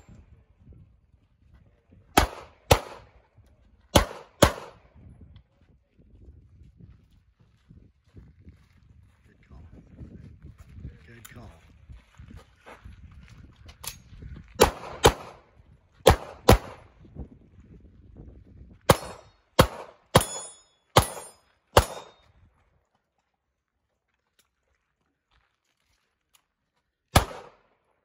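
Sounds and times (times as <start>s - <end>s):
pistol shots: 2.2s - 3.2s, 3.9s - 4.9s, 14.6s - 16.9s, 18.9s - 22.2s, 27.1s - 27.7s.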